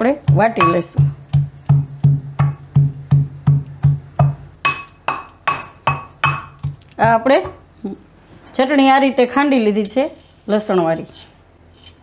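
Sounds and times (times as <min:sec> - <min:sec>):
metal pestle pounding in mortar: 0:00.2 - 0:07.6.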